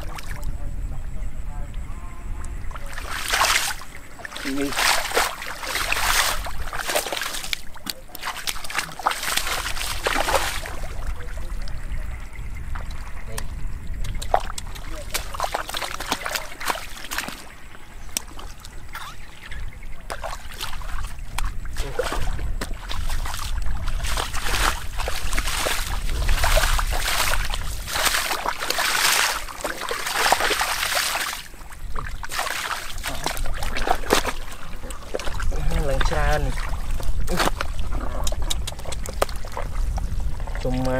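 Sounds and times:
boots splashing through muddy water: 0:02.7 - 0:11.4, 0:14.0 - 0:40.9
squelching through mud: 0:02.7 - 0:11.8, 0:12.8 - 0:40.9
steady low rumble: 0:09.6 - 0:15.4, 0:20.8 - 0:28.7.

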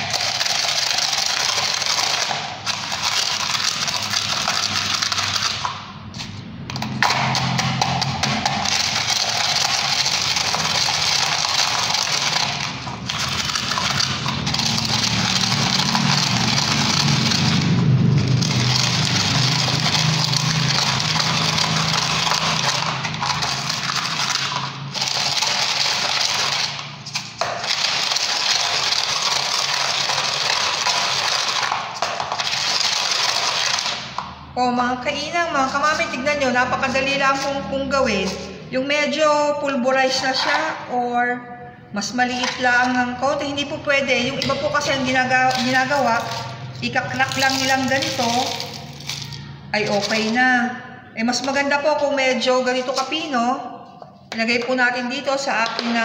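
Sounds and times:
eggshells crunching in plastic cup: 0:00.0 - 0:34.5, 0:44.3 - 0:50.4.

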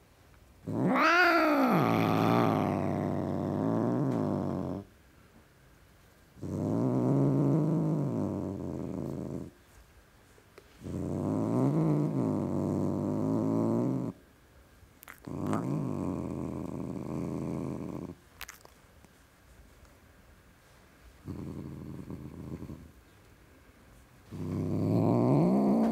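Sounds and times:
cat growling: 0:00.6 - 0:04.9, 0:06.4 - 0:09.6, 0:10.8 - 0:14.2, 0:15.0 - 0:18.7, 0:21.2 - 0:22.9, 0:24.3 - 0:25.9.

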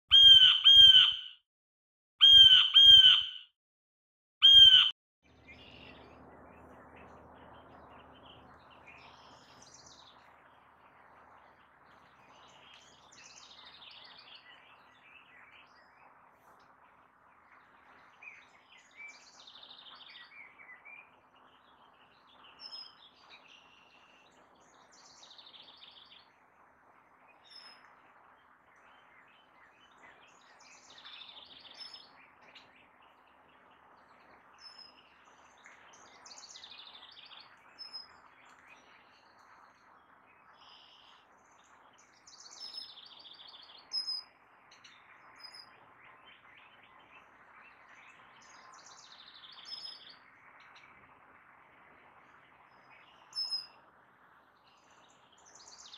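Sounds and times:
faint steady background hiss: 0:05.3 - 0:55.9
small songbirds singing: 0:27.3 - 0:53.9.

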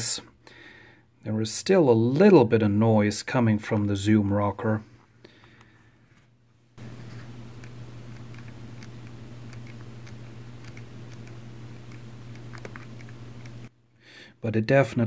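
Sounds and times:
zoom motor hum: 0:06.8 - 0:13.7.

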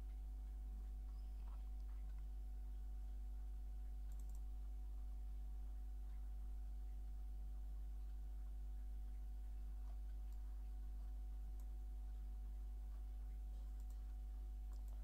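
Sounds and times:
steady low hum: 0:00.0 - 0:15.0
computer mouse clicks: 0:04.0 - 0:04.5, 0:09.9 - 0:10.5, 0:13.3 - 0:15.0.

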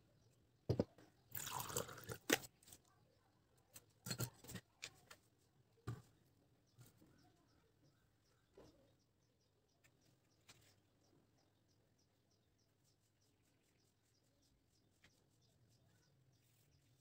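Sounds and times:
objects knocking on wooden table: 0:00.7 - 0:01.0.

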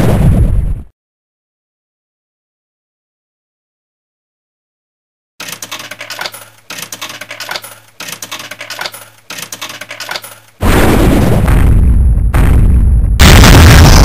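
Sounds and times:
coins clinking into vending machine: 0:05.4 - 0:10.6.

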